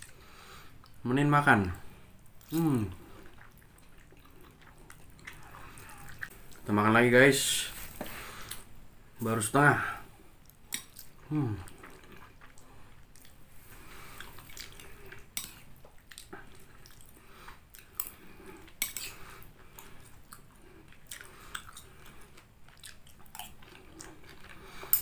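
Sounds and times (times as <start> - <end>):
chewing: 2.2 - 6.6, 10.4 - 25.0.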